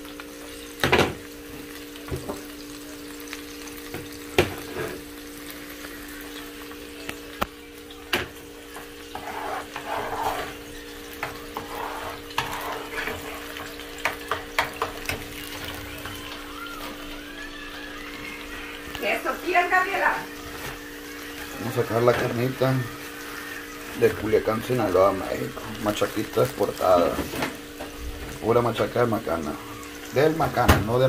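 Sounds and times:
vegetables sizzling in oil: 0.0 - 31.0.

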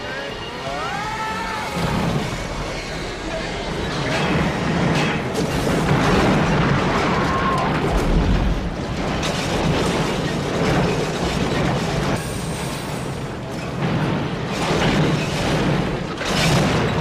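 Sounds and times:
train crashing: 0.0 - 17.0
booms and impacts: 1.8 - 12.2.

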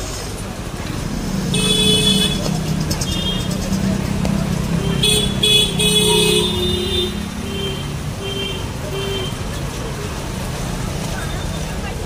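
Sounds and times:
vehicle engine running: 0.0 - 12.0
vehicle horns honking: 1.5 - 3.7, 4.6 - 9.6.

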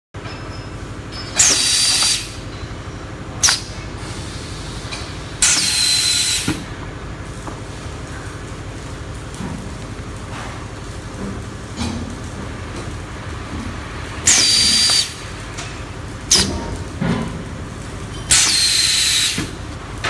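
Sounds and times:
low machine hum: 0.2 - 20.0
pneumatic air hisses: 1.4 - 2.4, 3.4 - 6.7, 14.2 - 15.2, 18.3 - 19.6
machine clunk: 15.6 - 17.5.

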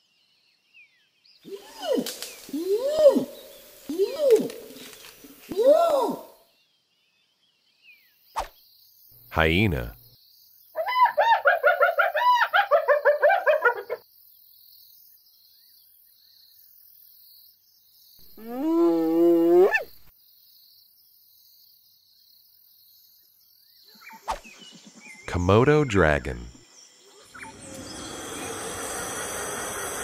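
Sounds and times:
faint insects chirring: 0.0 - 30.0
hyena yelping and calling: 1.5 - 4.8, 10.8 - 14.0, 18.2 - 20.1.

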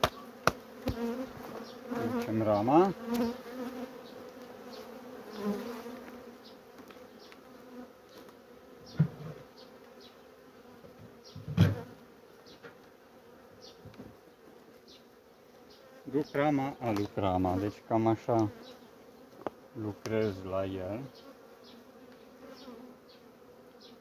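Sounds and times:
honeybees buzzing: 0.0 - 24.0.

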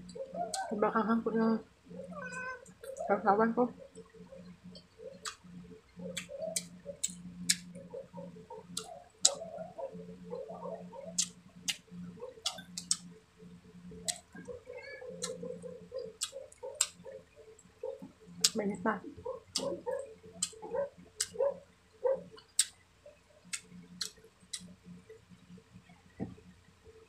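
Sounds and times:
person chewing with lip smacks: 6.1 - 7.7, 15.1 - 15.4, 18.4 - 18.6, 19.5 - 19.8.

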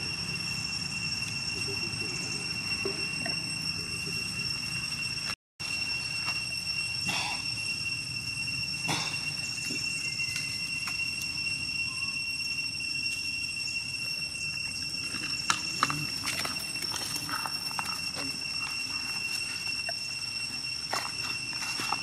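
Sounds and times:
high-pitched whine: 0.0 - 22.0
dry leaves crackling underfoot: 15.0 - 22.0.

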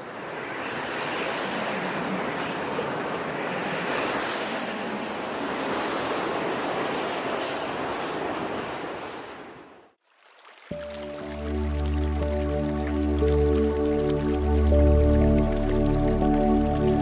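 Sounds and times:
steady rushing noise: 0.0 - 10.0.

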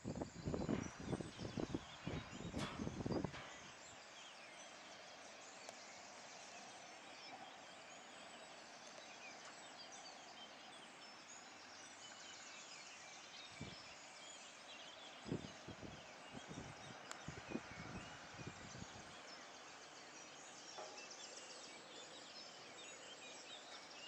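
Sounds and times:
faint high bird chirps: 0.0 - 24.0.

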